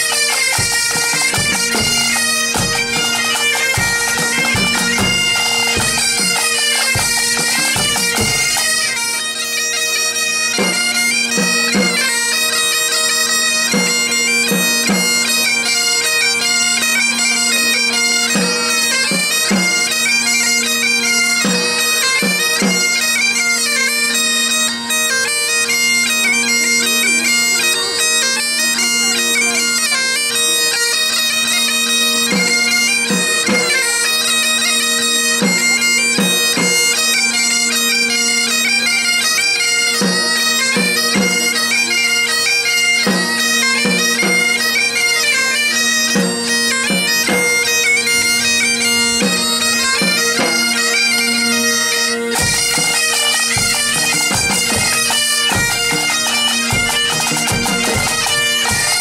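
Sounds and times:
drum strokes: 0.0s - 9.0s, 52.4s - 59.0s
bagpipe with drones: 0.0s - 59.0s
bombardes playing melody: 0.0s - 59.0s.

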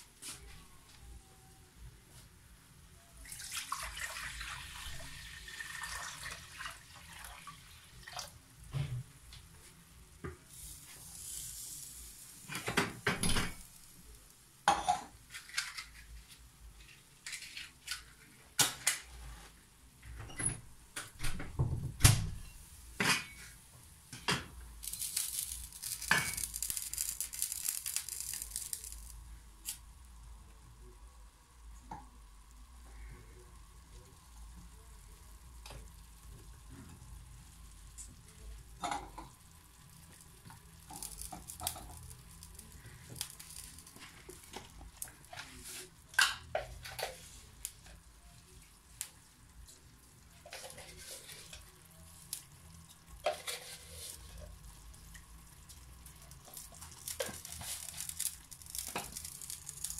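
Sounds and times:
liquid pouring into pot: 3.2s - 8.4s
pots and utensils clinking: 14.7s - 16.1s, 23.0s - 29.1s, 38.8s - 39.4s.

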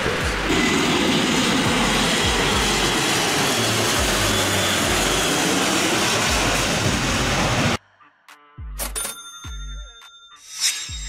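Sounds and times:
propeller plane flying overhead: 0.0s - 7.8s
bass of background music: 8.0s - 11.0s.

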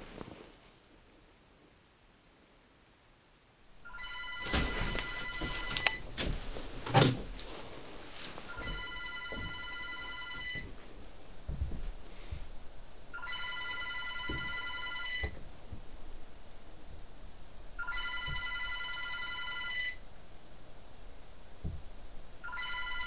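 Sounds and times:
telephone ringing: 3.8s - 6.1s, 8.5s - 10.7s, 13.1s - 15.4s, 17.8s - 20.0s, 22.4s - 23.0s
heavy thump: 11.4s - 12.6s, 21.6s - 21.9s
knocks: 14.2s - 15.9s.

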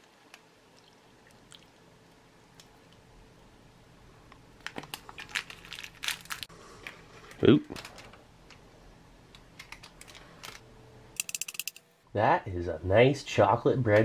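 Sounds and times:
plastic pouch crinkling and crunching: 4.6s - 8.1s.

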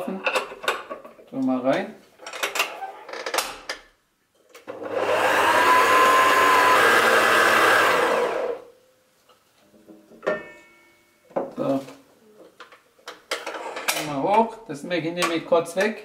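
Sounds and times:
stand mixer motor running: 4.9s - 8.6s.

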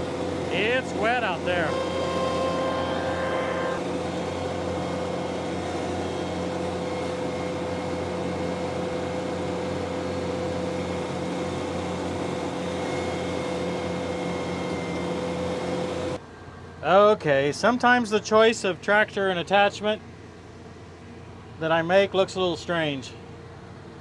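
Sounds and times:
mower whine: 0.0s - 16.9s
tractor engine drone: 0.0s - 24.0s.

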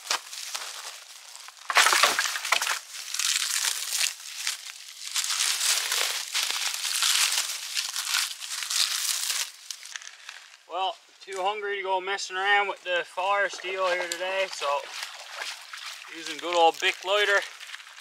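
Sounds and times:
dry kindling snapping: 0.0s - 10.6s.

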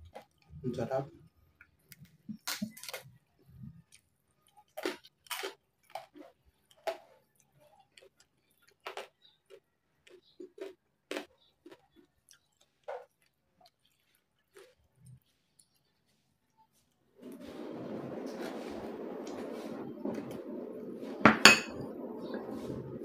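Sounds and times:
crunching and chewing: 0.0s - 17.4s.

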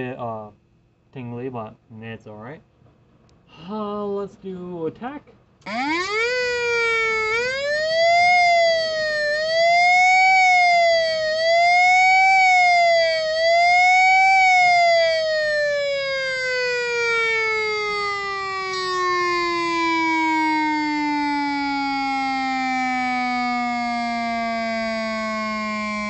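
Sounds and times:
electronic siren wailing: 5.6s - 26.0s.

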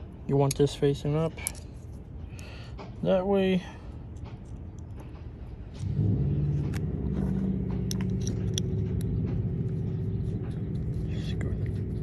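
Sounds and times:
light clicks of parts handled: 0.3s - 5.9s
vehicle engine running: 5.7s - 12.0s.

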